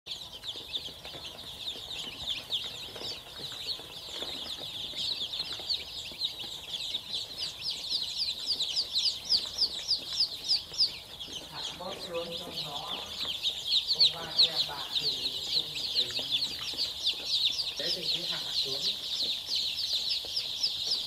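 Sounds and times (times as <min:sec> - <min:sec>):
chicks peeping: 0:00.1 - 0:21.0.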